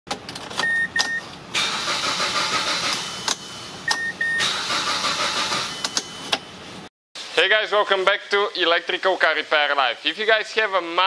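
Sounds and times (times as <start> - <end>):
car starter cranking engine: 0.6 - 6.2
short beeps: 3.9 - 4.5.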